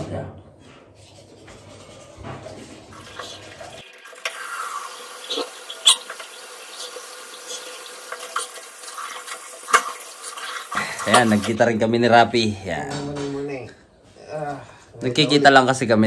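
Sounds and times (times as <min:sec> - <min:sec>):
tap running into washbasin: 0:02.9 - 0:11.6
toothbrush scrubbing teeth: 0:04.2 - 0:11.6.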